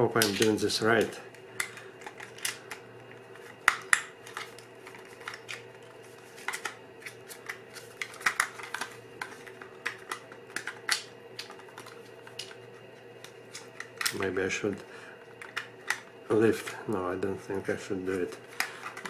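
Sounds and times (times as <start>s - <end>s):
faint steady hum: 0.0s - 19.0s
film cassette clicks and taps: 0.2s - 14.3s, 15.3s - 16.1s.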